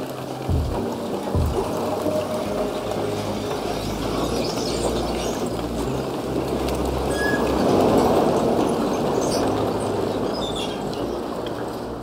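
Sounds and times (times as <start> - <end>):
truck engine running: 0.5 - 3.1.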